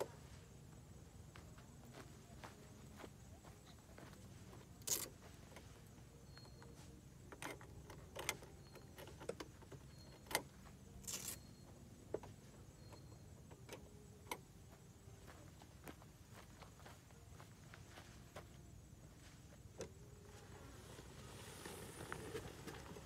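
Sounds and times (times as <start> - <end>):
faint clicks and knocks of latches: 7.3 - 10.5.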